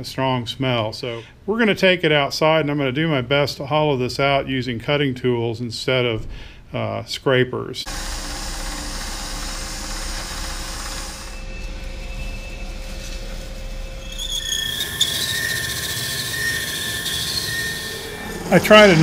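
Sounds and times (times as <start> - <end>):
wood lathe droning: 7.9 - 19.0
high squeal of bit cutting: 10.4 - 19.0.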